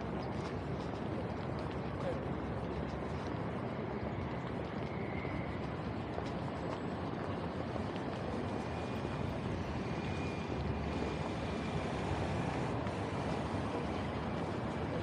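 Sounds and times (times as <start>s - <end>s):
road traffic going by: 8.6s - 15.0s.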